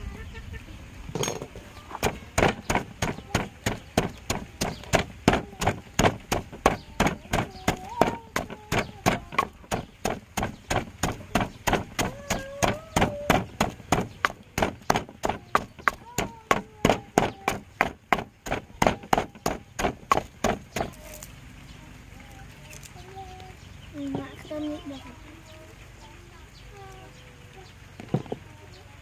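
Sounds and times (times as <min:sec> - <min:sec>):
pestle pounding in a mortar: 0:01.9 - 0:21.0.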